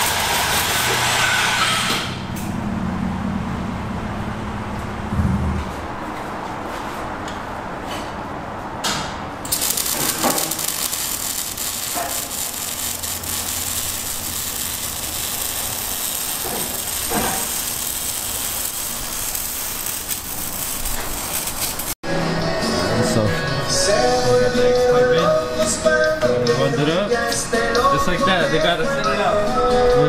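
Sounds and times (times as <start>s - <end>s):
arc welding hissing crackle: 0.0s - 2.2s, 9.4s - 22.0s.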